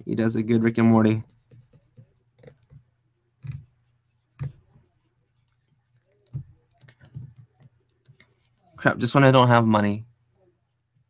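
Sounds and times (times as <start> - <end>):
stylus scratching and ticking: 0.0 - 9.0
stylus tapping on tablet: 1.2 - 4.8, 5.5 - 8.7.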